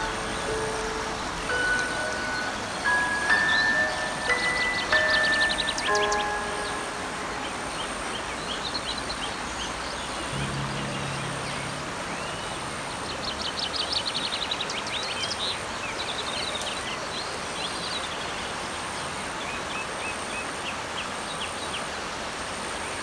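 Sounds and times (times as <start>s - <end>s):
small birds chirping: 0.0s - 21.9s
creek water rushing over boulders: 0.0s - 23.0s.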